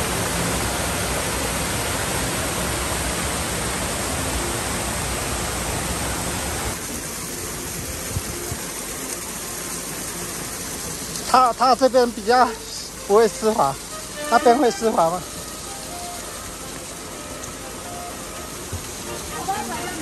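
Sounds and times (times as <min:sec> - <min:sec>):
waterfall rushing over rocks: 0:00.0 - 0:20.0.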